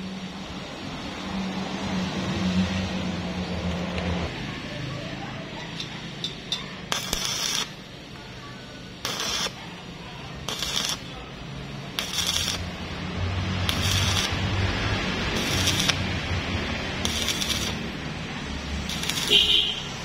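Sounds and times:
electric arc welding crackling hiss: 6.8s - 7.9s, 9.0s - 11.2s, 11.9s - 20.0s.

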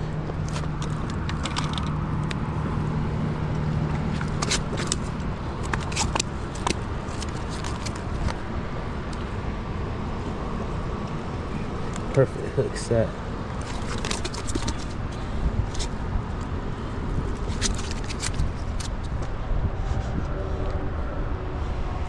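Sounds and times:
clicks and scrapes on rock: 4.1s - 8.4s, 13.6s - 15.1s, 17.4s - 19.3s
low hum: 18.4s - 22.0s.

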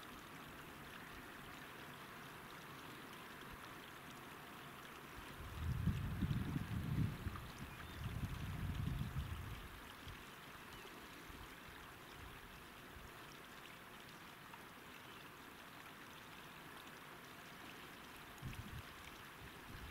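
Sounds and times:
rushing hiss of wind: 5.4s - 9.6s
wind buffeting microphone: 5.4s - 9.6s, 18.4s - 18.9s.

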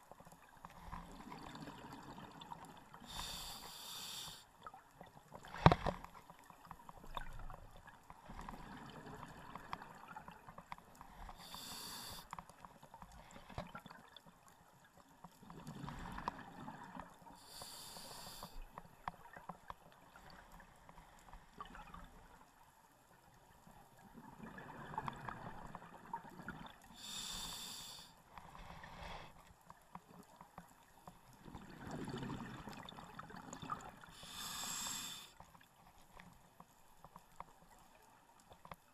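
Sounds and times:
regulator inhale hiss: 3.0s - 4.5s, 11.1s - 12.4s, 17.4s - 18.7s, 27.0s - 29.4s, 34.1s - 35.4s
bubbling exhale rush: 34.2s - 35.3s.

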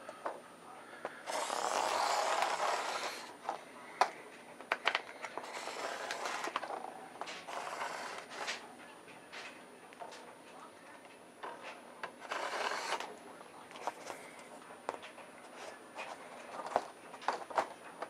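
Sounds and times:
marker scraping on foam: 1.2s - 3.6s, 5.4s - 8.6s, 12.2s - 13.1s.

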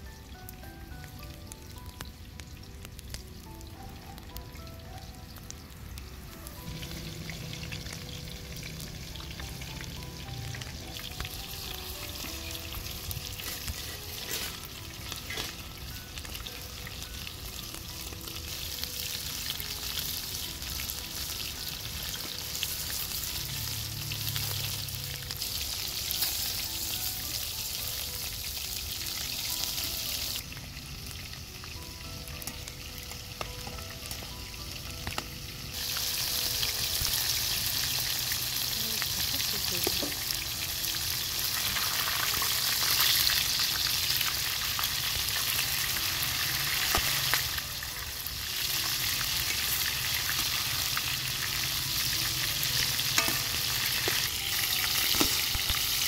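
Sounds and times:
deep-frying sizzle in oil: 0.0s - 56.0s.

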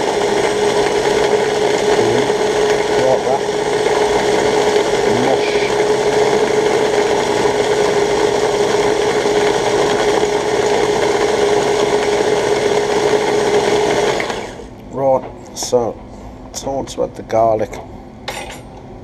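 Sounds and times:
food processor motor whine: 0.0s - 14.8s.

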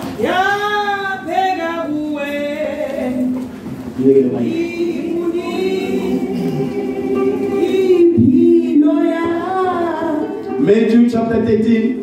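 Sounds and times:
voices singing gospel chorus: 4.3s - 10.4s.

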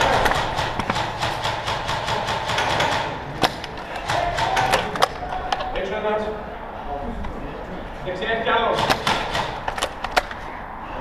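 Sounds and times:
airsoft gun firing full auto: 0.0s - 5.0s
sharp cracks: 0.0s - 5.8s, 8.7s - 10.4s.

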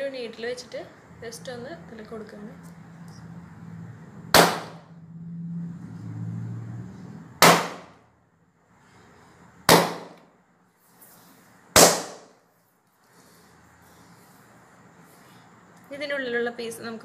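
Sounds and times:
balloons popping: 4.3s - 4.8s, 9.7s - 10.2s, 11.8s - 12.4s.

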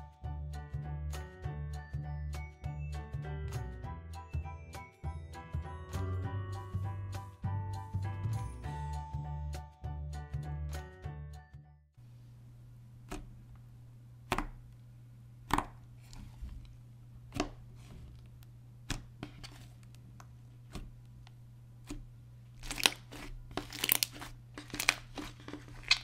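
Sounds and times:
slime clicking and popping: 22.6s - 25.0s.

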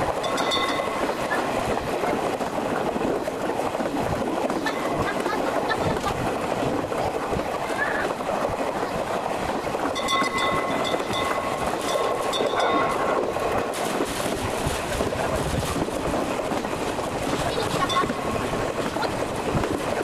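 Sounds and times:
train rumbling along track: 0.0s - 20.0s
level crossing warning bell: 0.2s - 1.3s, 9.9s - 13.5s.

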